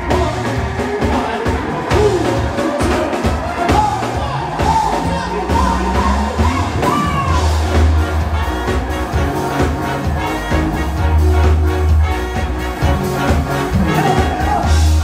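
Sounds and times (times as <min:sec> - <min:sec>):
drum beat: 0:00.0 - 0:15.0
heavy bass line: 0:00.0 - 0:15.0
sliding melody: 0:05.4 - 0:15.0.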